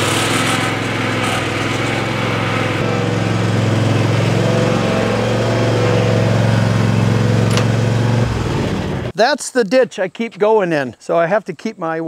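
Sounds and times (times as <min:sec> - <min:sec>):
riding mower engine running: 0:00.0 - 0:09.1.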